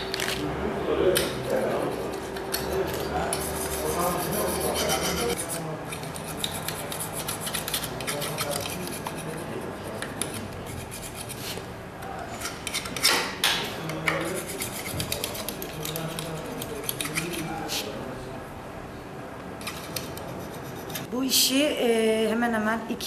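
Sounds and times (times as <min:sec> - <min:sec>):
hand file rasping on metal: 0:01.4 - 0:11.6, 0:14.2 - 0:17.5.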